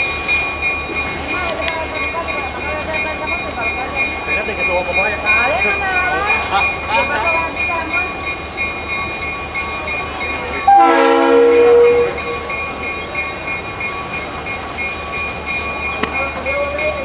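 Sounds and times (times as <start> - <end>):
locomotive horn blast: 10.7 - 12.4.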